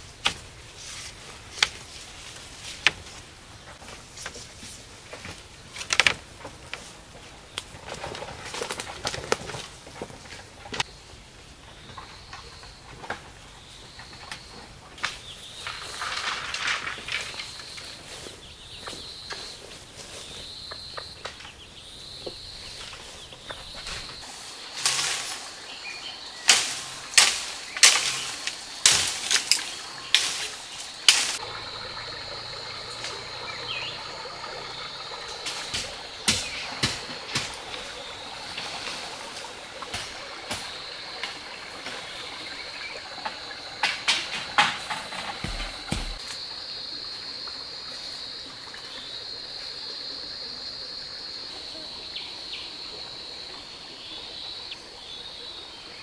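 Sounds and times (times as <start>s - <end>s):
stream running over stones: 0.0s - 56.0s.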